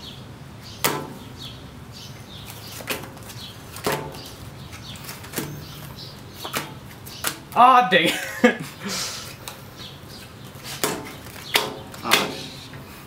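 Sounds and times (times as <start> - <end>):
cards slapped on glass: 3.8 - 4.3.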